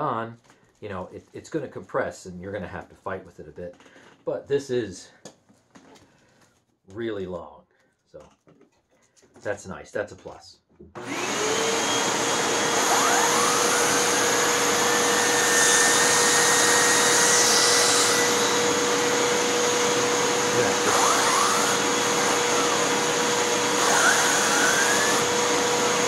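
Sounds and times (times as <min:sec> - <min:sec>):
turbo tool turbine whine: 0:11.0 - 0:26.0
upright vacuum running: 0:11.0 - 0:26.0.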